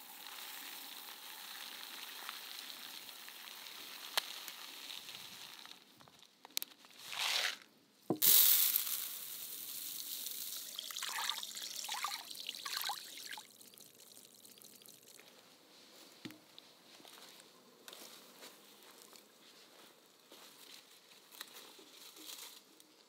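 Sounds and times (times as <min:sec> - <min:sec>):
rice grains pouring: 0:00.0 - 0:05.9, 0:07.0 - 0:15.3
water trickling: 0:09.9 - 0:15.4.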